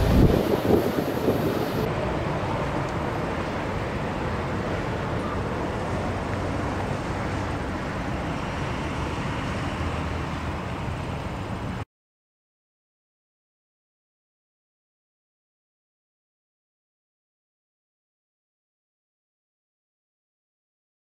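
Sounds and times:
passing vehicle rumble: 0.0 - 11.8.

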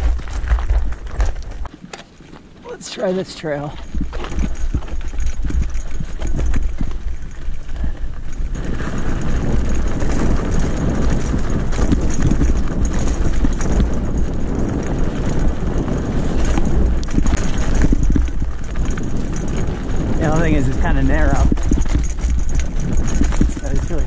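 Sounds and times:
wind rumble on microphone: 0.0 - 1.7, 3.5 - 24.0
tyres crunching over stones: 0.0 - 13.5
bike rattling: 0.0 - 24.0.

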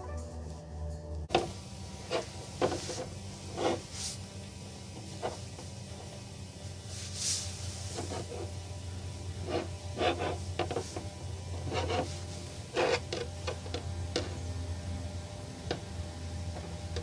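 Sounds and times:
cloth rubbing on plastic: 2.1 - 4.3, 6.8 - 8.6, 9.4 - 13.0.

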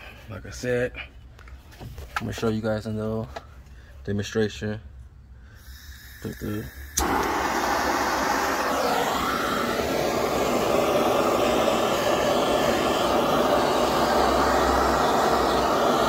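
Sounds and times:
gas torch flame rushing: 5.6 - 16.0.

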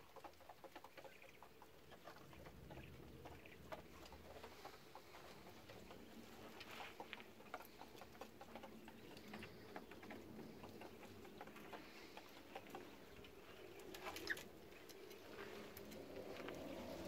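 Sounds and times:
quails pecking in straw: 0.0 - 17.0.

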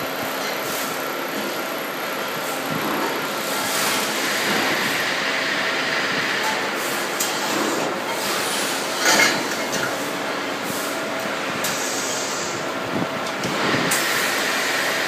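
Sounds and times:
welding machine humming and hissing: 0.0 - 15.0.

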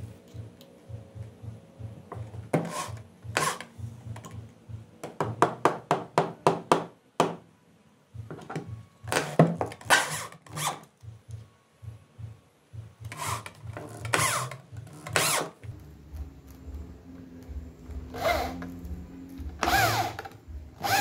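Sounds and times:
electric drill in wood: 13.1 - 15.6, 18.1 - 18.8, 19.5 - 21.0.

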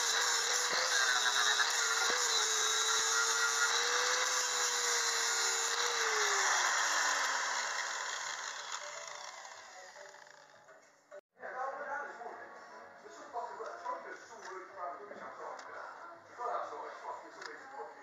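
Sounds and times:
grinder spinning down: 0.0 - 10.6
angle grinder grinding metal: 0.0 - 10.7.

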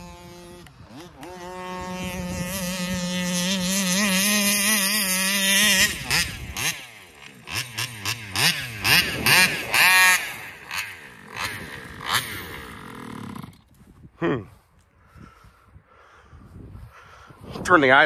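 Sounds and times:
rc car engine revving: 0.0 - 13.7.

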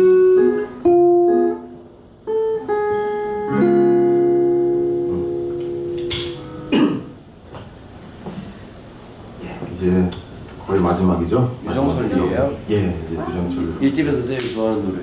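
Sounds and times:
acoustic guitar: 0.0 - 7.2.

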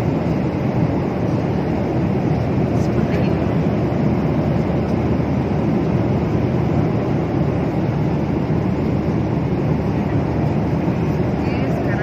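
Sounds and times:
airliner cabin noise: 0.0 - 12.0.

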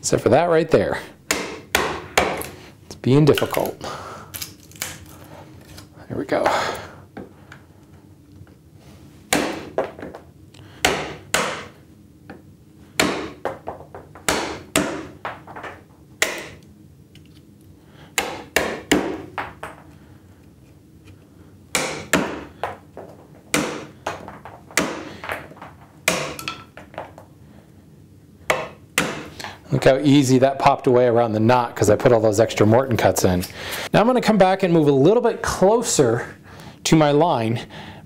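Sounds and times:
mallet striking chisel: 10.9 - 11.7
wood splitting: 26.0 - 26.4.

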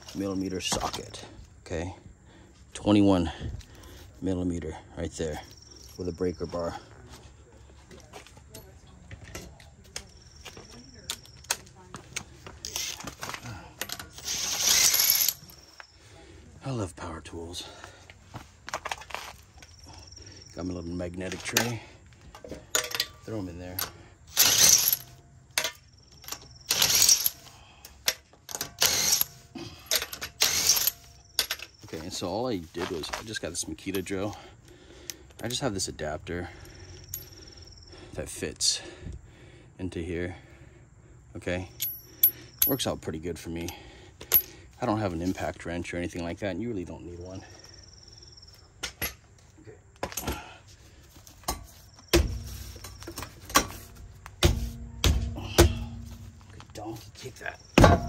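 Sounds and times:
light metallic clinks: 22.4 - 24.0, 41.8 - 42.9
lug nuts clattering into metal tray: 22.4 - 27.4
light metal clinks: 41.7 - 42.9
car wheel being kicked: 57.8 - 58.0.

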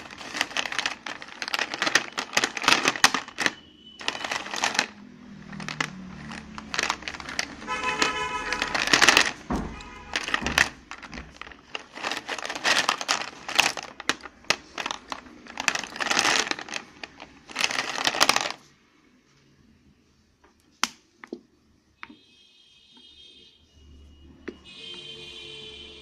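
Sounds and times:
slate pencils clattering: 0.0 - 18.7.

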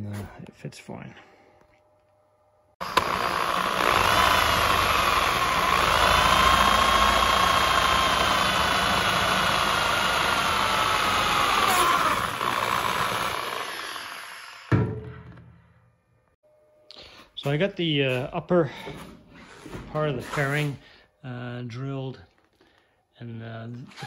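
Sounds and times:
power drill whining: 2.8 - 14.7.

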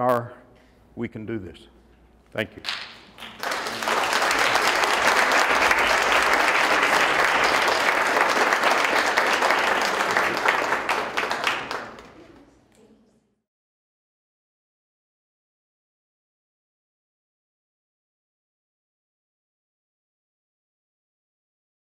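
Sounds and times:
audience applauding: 2.7 - 12.4.

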